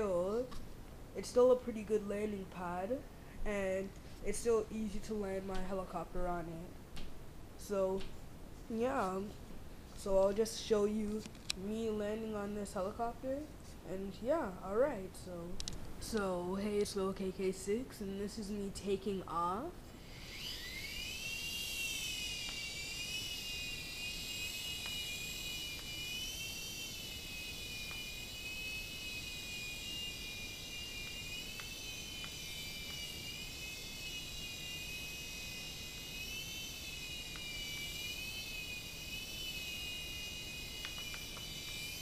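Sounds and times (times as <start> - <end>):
toy helicopter rotors whining: 16.2 - 42.0.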